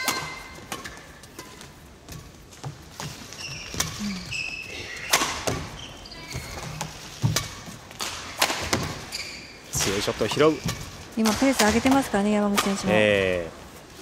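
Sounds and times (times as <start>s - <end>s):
shoe squeaks: 3.1s - 7.2s, 8.9s - 10.9s.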